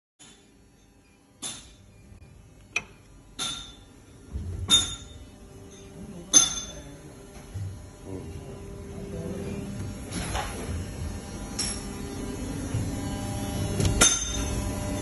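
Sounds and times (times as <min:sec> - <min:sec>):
low machine hum: 0:00.2 - 0:15.0.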